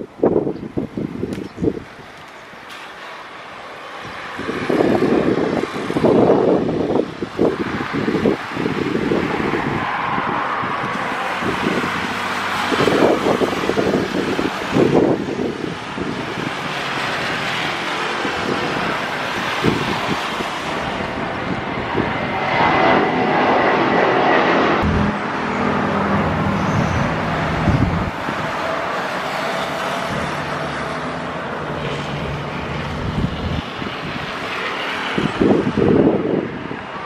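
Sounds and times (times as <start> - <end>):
jet engines roaring: 0.0 - 37.0.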